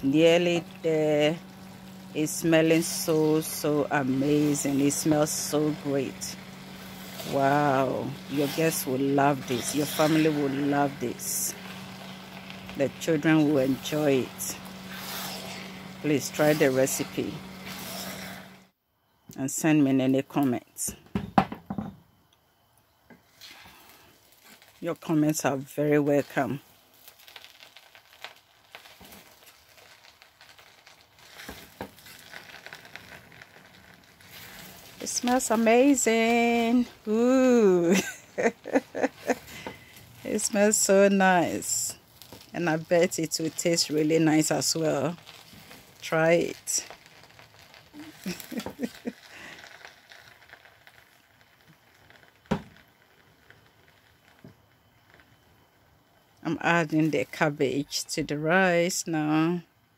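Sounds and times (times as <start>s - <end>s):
faint sizzle: 0.0s - 20.9s, 22.2s - 59.9s
wooden spoon scraping pot: 0.4s - 18.6s
soft rustling of rice: 23.2s - 55.5s.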